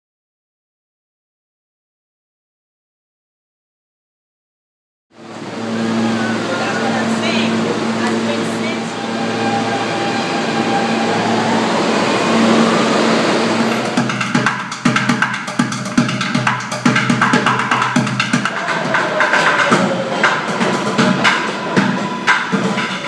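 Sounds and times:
subway train rumbling: 5.1s - 23.0s
drumming on plastic buckets: 14.0s - 23.0s.

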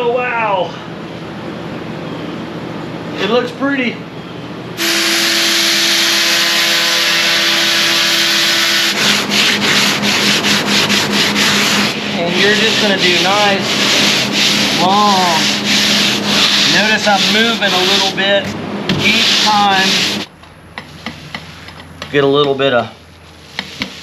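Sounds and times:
angle grinder running: 4.8s - 18.2s
sanding board rasping: 4.8s - 20.3s, 23.4s - 24.0s
sanding squeaks: 7.5s - 18.3s, 19.0s - 20.3s.

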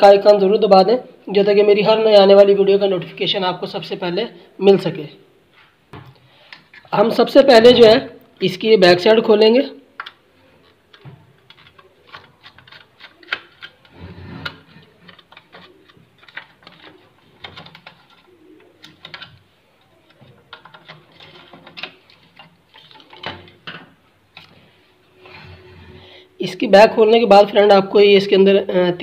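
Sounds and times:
plastic cover handled: 10.0s - 24.7s.

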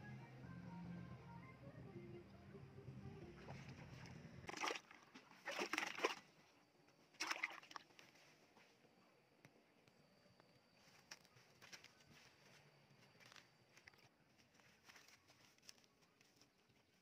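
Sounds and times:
fish splashing in water: 4.5s - 6.3s, 7.2s - 7.8s.

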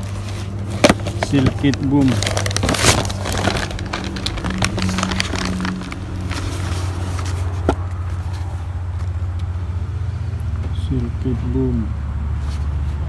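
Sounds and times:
plastic bags crinkling: 0.0s - 7.6s.

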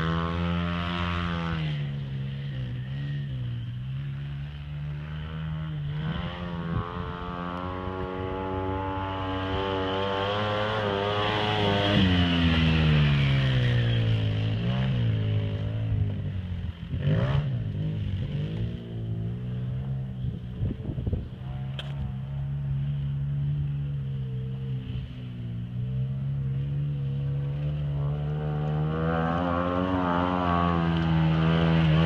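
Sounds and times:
vehicle engine revving past: 5.2s - 15.7s, 26.3s - 32.0s.

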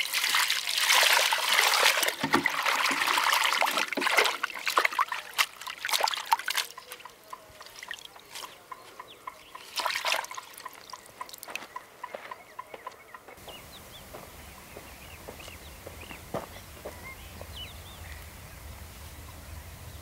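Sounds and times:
water pouring into a bowl: 0.0s - 6.9s, 9.7s - 11.0s
hands rinsing leaves in water: 0.0s - 8.6s, 9.6s - 11.6s.

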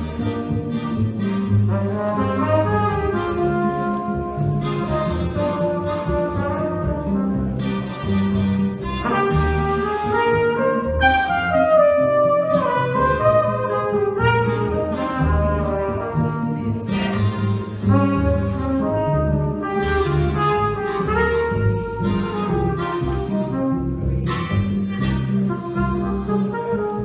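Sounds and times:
guitar chords: 0.0s - 18.7s
plucked upright bass: 0.0s - 27.0s
trumpet melody: 0.0s - 27.0s.

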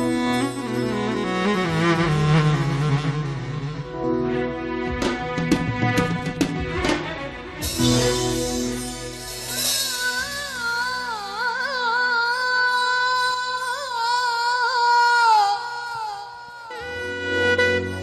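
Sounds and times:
band playing: 0.0s - 11.2s
woman singing into microphone: 9.4s - 18.0s.

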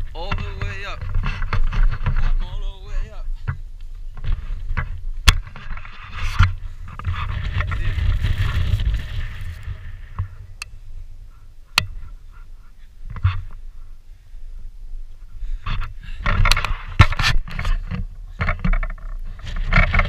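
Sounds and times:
footstep clicks and scrapes: 0.0s - 10.7s, 11.7s - 13.7s, 15.1s - 20.0s
wind buffeting microphone: 0.0s - 14.0s.

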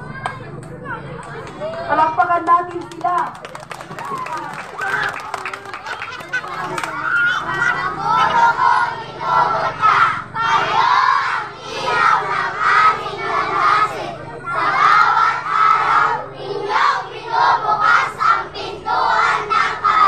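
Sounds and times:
children chanting and singing: 6.3s - 20.0s.

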